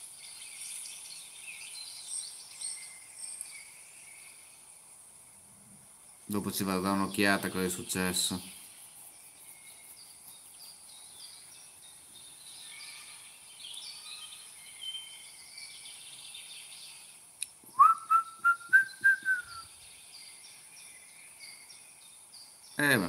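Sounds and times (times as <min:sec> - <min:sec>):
birds chirping: 0:00.0 - 0:05.3, 0:05.9 - 0:23.0
loud pulsing whistled tone: 0:17.8 - 0:19.7.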